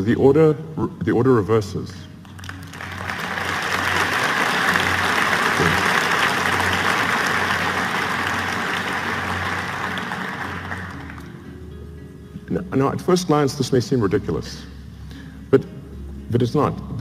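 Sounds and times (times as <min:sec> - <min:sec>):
audience applauding: 0:02.2 - 0:11.3.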